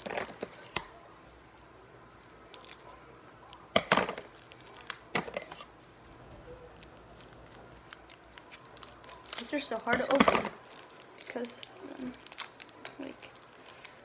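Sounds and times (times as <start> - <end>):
foil wrapper crinkling: 4.2 - 5.4, 6.7 - 14.0.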